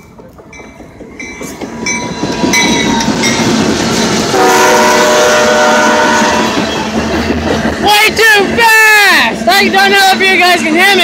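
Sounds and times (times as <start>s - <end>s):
crossing bell dinging: 0.0s - 5.0s
train locomotive rumbling past: 0.0s - 11.0s
locomotive horn chord: 4.3s - 6.5s.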